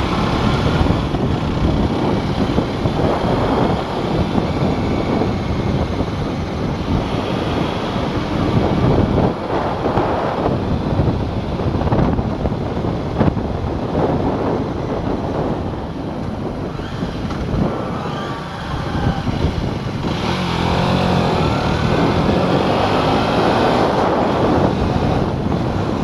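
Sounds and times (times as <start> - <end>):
motorcycle engine running: 0.0 - 26.0
wind rushing over microphone: 0.0 - 26.0.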